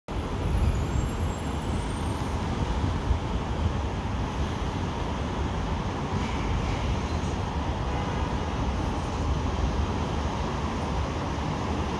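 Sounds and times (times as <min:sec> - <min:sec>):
wind rumbling on microphone: 0:00.1 - 0:07.8.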